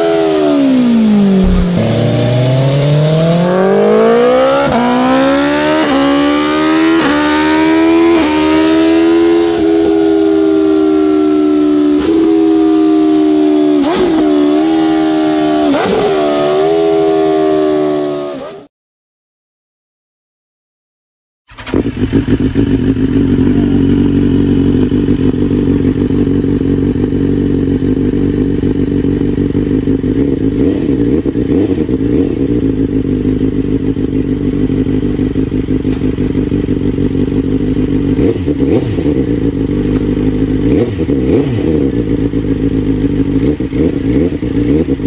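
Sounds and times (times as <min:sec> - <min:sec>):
motorcycle engine idling: 0:21.5 - 0:30.6, 0:32.4 - 0:38.6, 0:41.9 - 0:45.0.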